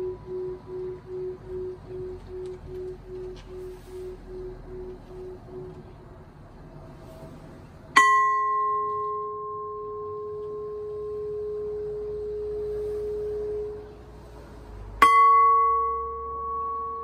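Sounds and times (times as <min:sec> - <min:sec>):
metal gong ringing: 0:08.0 - 0:14.2, 0:14.9 - 0:17.0.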